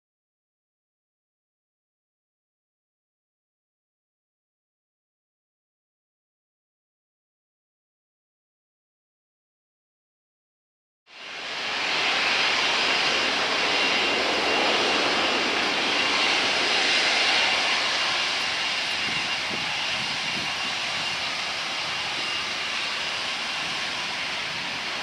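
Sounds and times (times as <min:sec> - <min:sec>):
jet engines running: 0:11.1 - 0:25.0.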